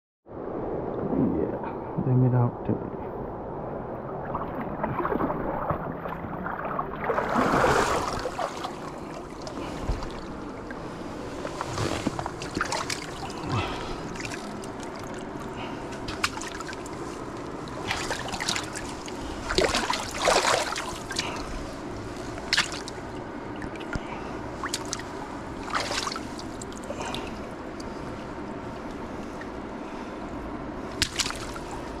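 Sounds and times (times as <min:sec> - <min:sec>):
creek water running: 0:04.2 - 0:32.0
fish splashing in water: 0:11.5 - 0:21.5, 0:22.3 - 0:27.9, 0:30.9 - 0:32.0.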